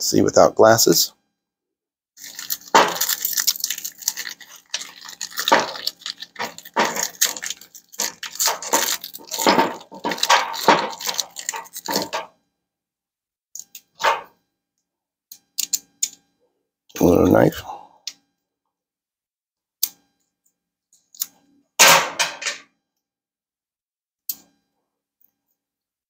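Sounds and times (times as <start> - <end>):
plastic blister pack crinkling: 2.2 - 12.3.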